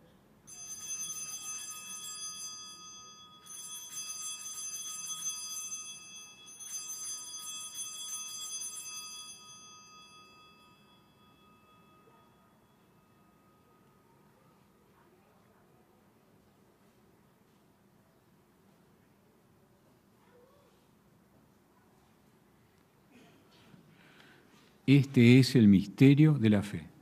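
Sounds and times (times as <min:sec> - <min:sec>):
altar bells ringing: 0:00.5 - 0:14.2.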